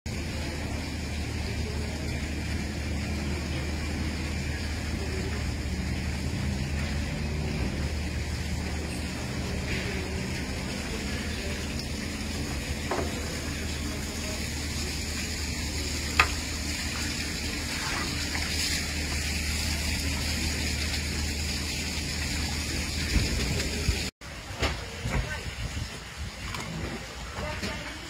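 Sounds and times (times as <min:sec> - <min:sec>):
water sloshing and fizzing: 0:00.1 - 0:28.0.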